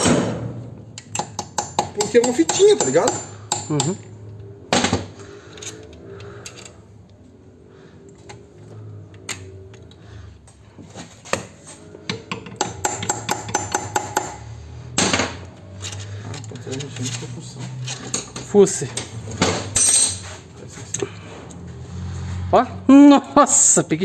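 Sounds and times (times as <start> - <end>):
metal parts and tools clinking: 5.3 - 6.8, 15.7 - 21.6.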